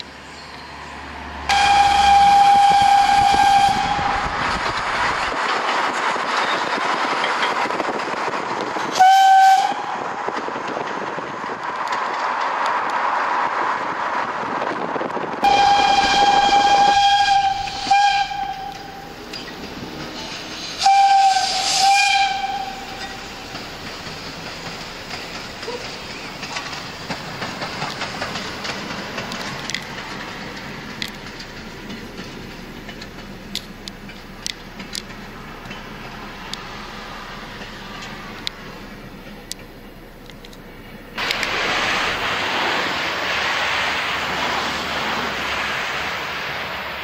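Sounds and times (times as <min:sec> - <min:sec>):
steady rushing noise: 0:01.2 - 0:09.0, 0:09.6 - 0:47.0
steam whistle blasts: 0:01.5 - 0:04.4, 0:09.0 - 0:10.0, 0:15.4 - 0:19.1, 0:20.8 - 0:23.2.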